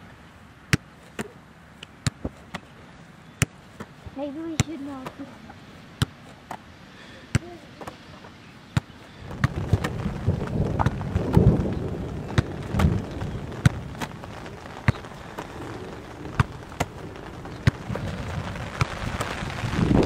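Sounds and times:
ball striking thuds: 0:00.7 - 0:02.8, 0:03.4 - 0:05.3, 0:06.0 - 0:06.7, 0:08.7 - 0:14.2, 0:16.4 - 0:18.1
steady low rumble: 0:09.1 - 0:20.0.

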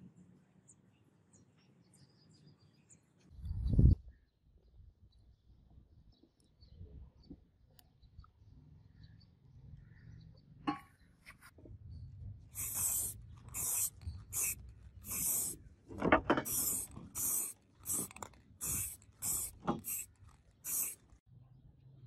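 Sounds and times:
aerosol spray hissing: 0:12.6 - 0:15.6, 0:16.4 - 0:21.0.

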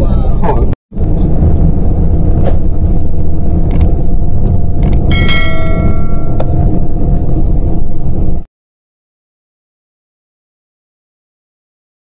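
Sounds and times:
low rumble of moving vehicle: 0:00.0 - 0:08.5
clicks: 0:03.7 - 0:05.1
short metallic ringing: 0:05.1 - 0:06.4.

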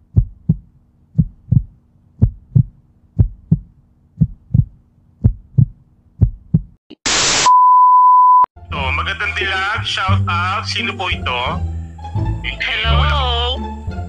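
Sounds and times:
heartbeat thumps: 0:00.0 - 0:06.8.

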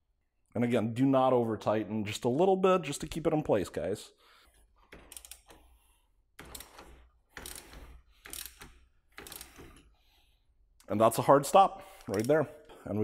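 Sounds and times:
hose fitting clicking: 0:12.0 - 0:12.5.

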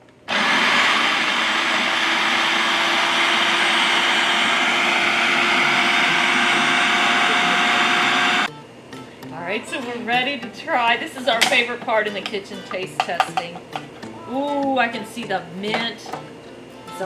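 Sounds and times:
food processor blade churning: 0:00.3 - 0:08.5.

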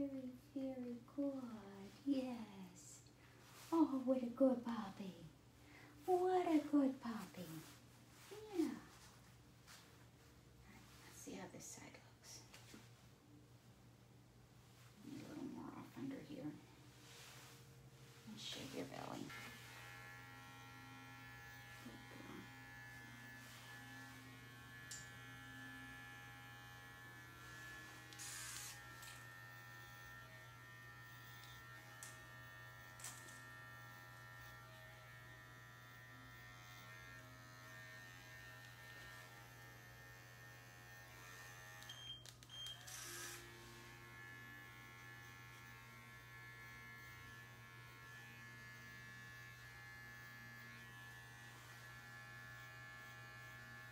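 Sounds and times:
electric clippers humming: 0:18.9 - 0:53.9.

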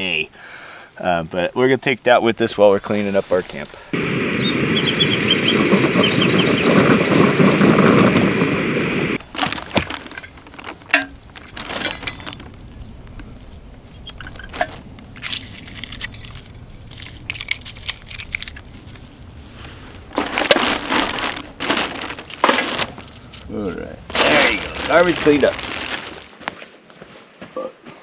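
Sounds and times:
steady rushing noise: 0:03.9 - 0:09.2
plastic bag crinkling: 0:09.2 - 0:12.8, 0:20.1 - 0:26.4
metal and glass pieces clinking: 0:10.2 - 0:12.5, 0:14.0 - 0:19.0.

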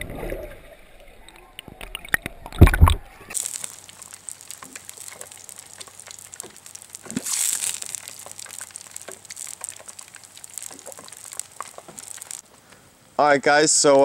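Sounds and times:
campfire crackling and popping: 0:00.0 - 0:13.3
fire hiss: 0:03.3 - 0:14.0.

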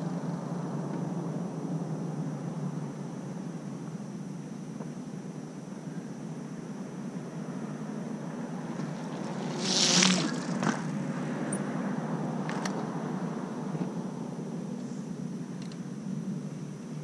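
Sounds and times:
bicycle tyres splashing through puddle: 0:08.8 - 0:10.9.

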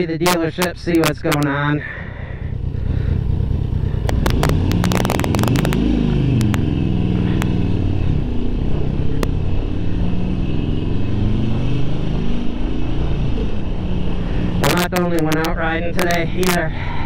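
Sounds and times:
motorcycle engine accelerating: 0:01.9 - 0:16.6
sharp clicks: 0:04.0 - 0:06.7.

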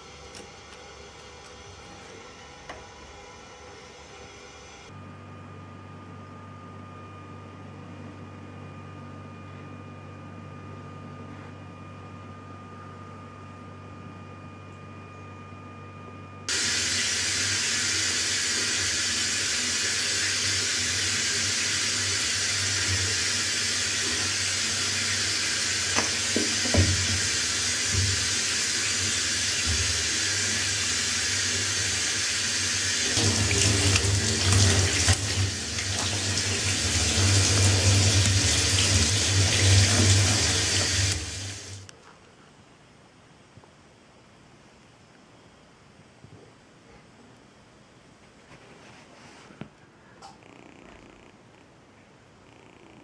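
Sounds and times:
water running into a bathtub: 0:16.5 - 0:41.9.

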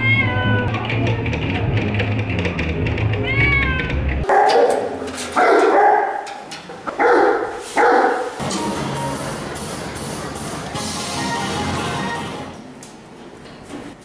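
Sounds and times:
background music: 0:00.1 - 0:04.3, 0:08.4 - 0:12.6.

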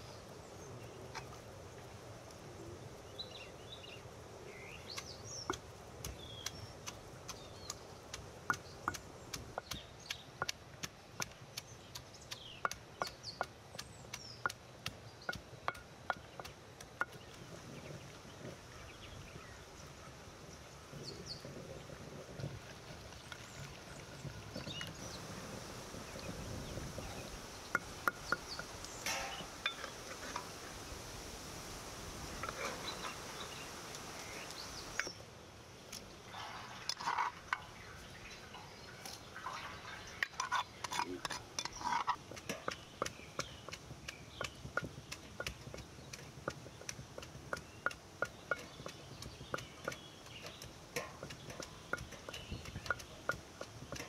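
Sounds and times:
pestle crushing in stone mortar: 0:04.9 - 0:17.5, 0:40.2 - 0:54.0
clicks and scrapes on metal colander: 0:40.2 - 0:43.1, 0:44.4 - 0:54.0.

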